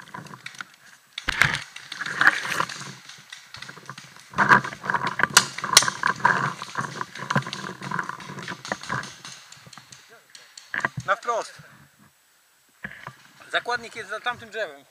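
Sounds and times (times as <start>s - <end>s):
gear rattling: 0.0s - 11.5s
sharp cracks: 0.0s - 11.8s.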